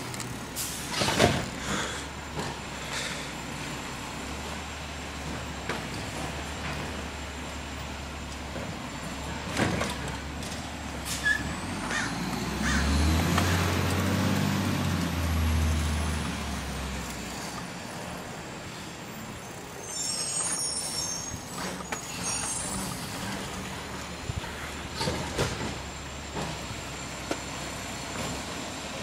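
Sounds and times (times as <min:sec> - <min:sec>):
garbage truck engine revving: 0:00.0 - 0:18.6
road and wind noise: 0:00.0 - 0:29.0
high squeaks: 0:19.5 - 0:23.6.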